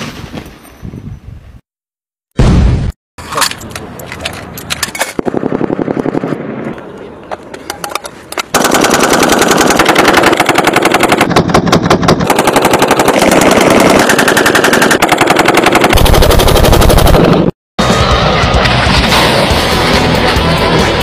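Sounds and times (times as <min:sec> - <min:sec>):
machine gun firing rapid bursts: 0:08.5 - 0:17.5.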